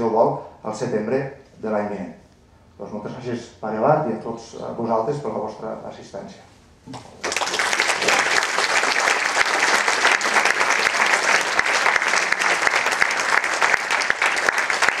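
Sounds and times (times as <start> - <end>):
audience applauding: 7.2 - 15.0.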